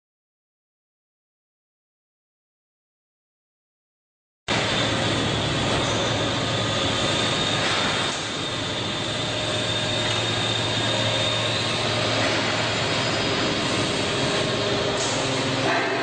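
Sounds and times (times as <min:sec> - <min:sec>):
hydraulic press humming and hissing: 0:04.5 - 0:16.0.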